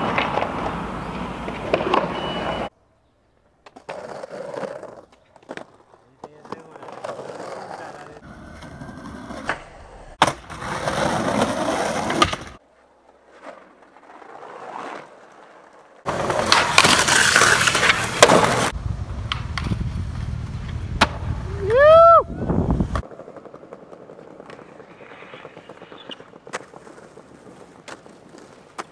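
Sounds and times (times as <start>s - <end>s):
skateboard clacks: 0.0s - 2.6s, 13.2s - 19.8s, 22.9s - 28.9s
skateboard wheels rolling on pavement: 0.0s - 28.9s
skateboard scraping a ledge: 3.8s - 21.4s, 22.5s - 28.9s.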